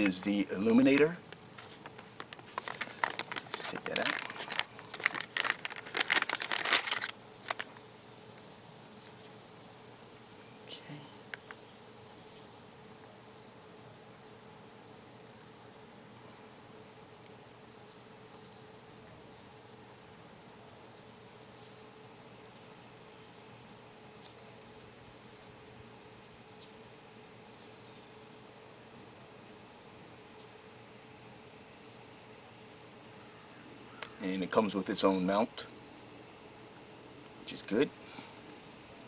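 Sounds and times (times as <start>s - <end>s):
insects shrilling: 0.0s - 13.0s, 30.2s - 39.0s.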